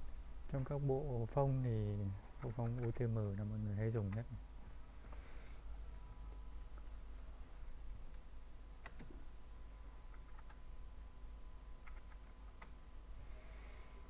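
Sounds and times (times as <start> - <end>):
low hum: 0.0 - 14.0
keyboard keystrokes: 7.9 - 9.2, 10.1 - 10.6, 11.8 - 12.8.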